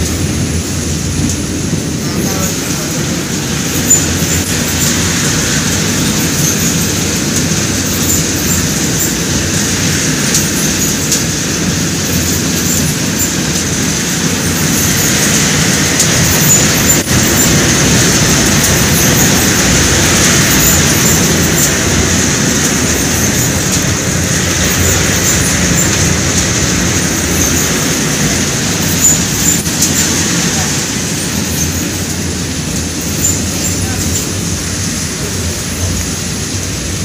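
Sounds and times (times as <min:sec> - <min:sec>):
popcorn machine rumble and hiss: 0:00.0 - 0:37.0.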